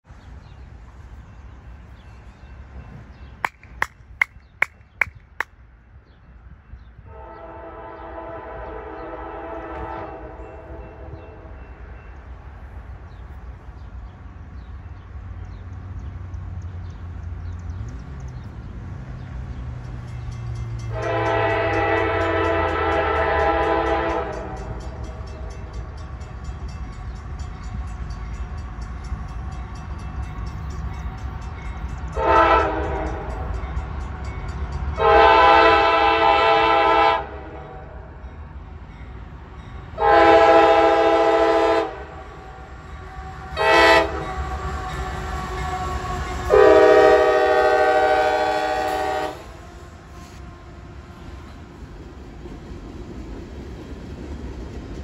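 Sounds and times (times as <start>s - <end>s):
locomotive rumble: 6.9s - 55.0s
locomotive horn blasts: 7.0s - 11.6s, 20.8s - 24.9s, 32.2s - 33.5s, 35.0s - 38.0s, 40.0s - 50.9s.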